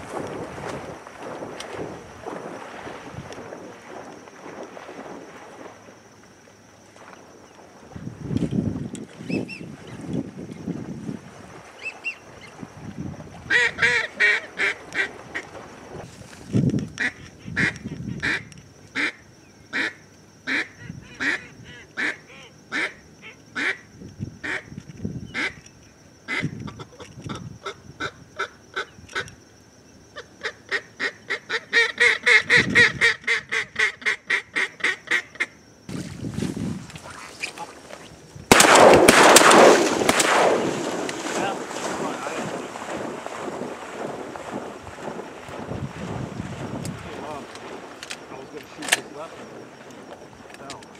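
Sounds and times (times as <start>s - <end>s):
duck call quacks: 13.5s - 15.1s, 17.0s - 18.4s, 19.8s - 23.8s, 30.4s - 35.5s.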